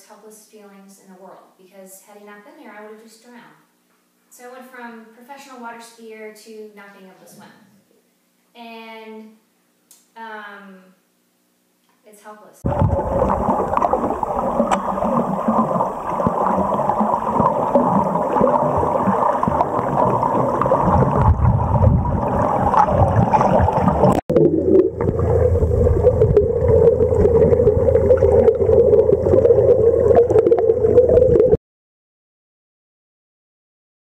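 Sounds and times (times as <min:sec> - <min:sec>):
muffled underwater rushing water: 0:12.6 - 0:31.6
steady low hum: 0:12.7 - 0:31.6.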